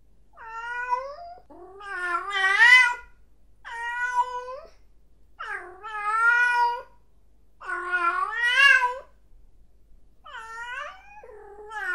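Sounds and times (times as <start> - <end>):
cat meowing: 0.4 - 3.1, 3.7 - 4.8, 5.4 - 7.0, 7.6 - 9.1, 10.3 - 11.9.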